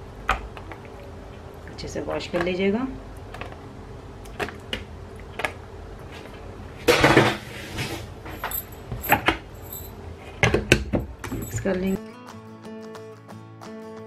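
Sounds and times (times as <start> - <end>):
rustling scrape: 6.1 - 10.3.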